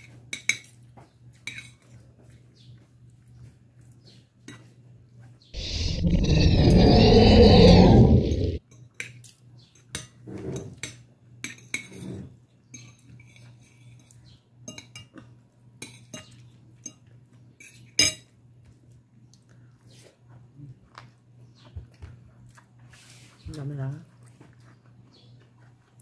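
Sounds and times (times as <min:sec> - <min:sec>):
clinks on a glass plate: 0:12.7 - 0:15.2, 0:15.8 - 0:18.3.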